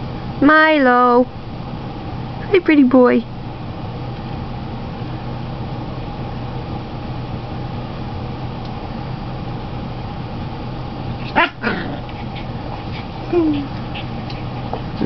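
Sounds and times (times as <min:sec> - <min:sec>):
steady room hum: 0:00.0 - 0:15.0
puppy yipping: 0:11.2 - 0:12.5.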